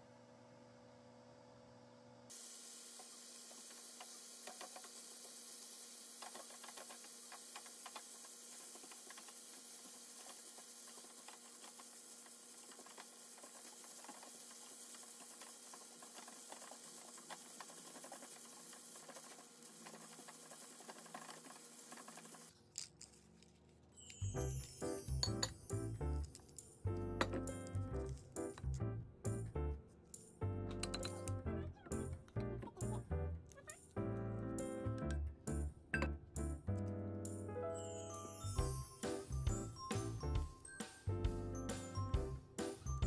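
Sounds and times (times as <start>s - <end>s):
pork and rice sizzling in a pan: 2.3s - 22.5s
utensil scraping and clicking: 6.2s - 23.5s.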